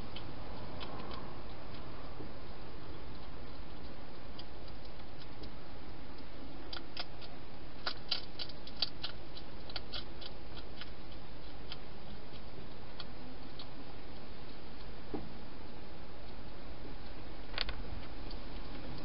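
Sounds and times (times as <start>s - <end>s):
hedgehog chewing clicks: 0.0s - 15.0s
microphone hiss: 0.0s - 19.0s.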